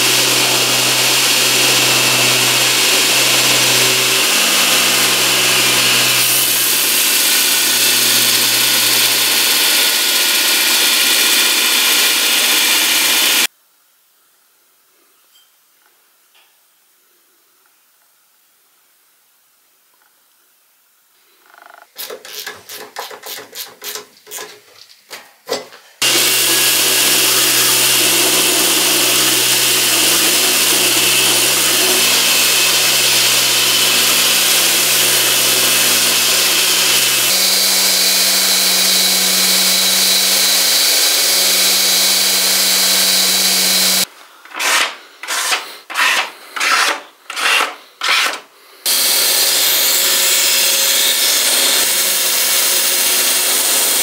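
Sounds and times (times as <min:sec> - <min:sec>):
belt grinder grinding: 0:00.0 - 0:13.5, 0:21.9 - 0:24.6, 0:26.0 - 0:54.0
motor humming: 0:00.0 - 0:13.5, 0:26.0 - 0:44.0.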